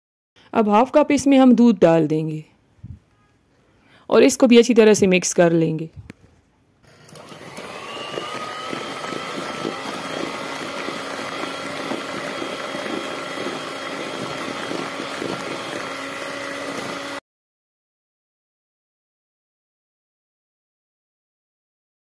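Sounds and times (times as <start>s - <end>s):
electric hand mixer whining: 6.8s - 17.2s.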